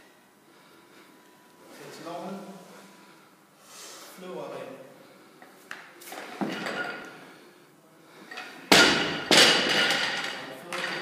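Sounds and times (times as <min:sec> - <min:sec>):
barbell dropping with loud bangs: 0:08.7 - 0:10.4.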